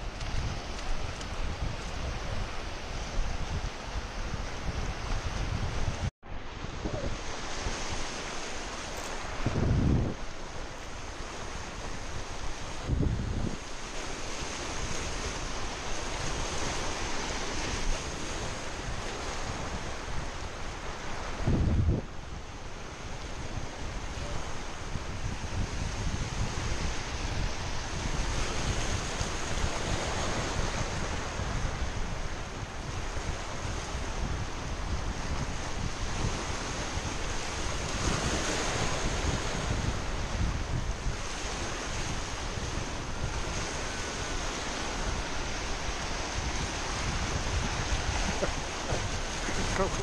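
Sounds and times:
wind buffeting microphone: 0.0s - 50.0s
surf breaking over rocks: 36.4s - 50.0s.

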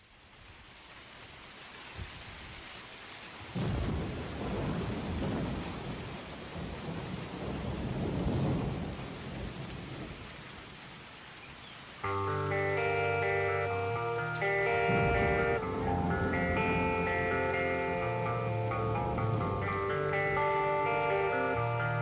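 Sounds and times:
steady rain: 0.0s - 22.0s
thunder rumbling: 3.5s - 10.3s, 12.5s - 22.0s.

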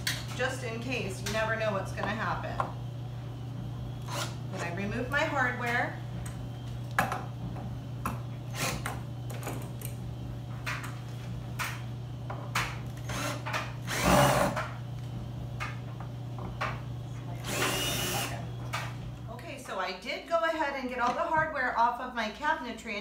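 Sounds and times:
cordless drill running: 4.0s - 4.4s, 8.5s - 8.9s, 13.0s - 14.6s, 17.4s - 18.4s.

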